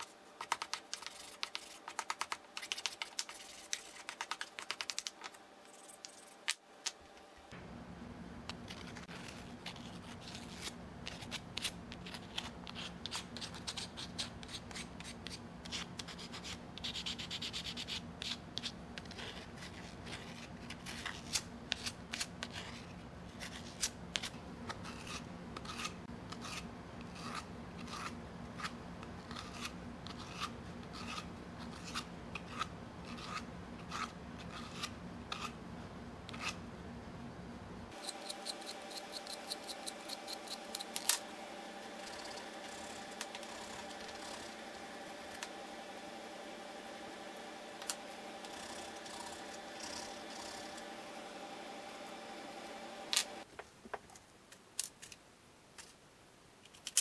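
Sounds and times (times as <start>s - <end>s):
sandpaper scraping wood: 37.9s - 53.4s.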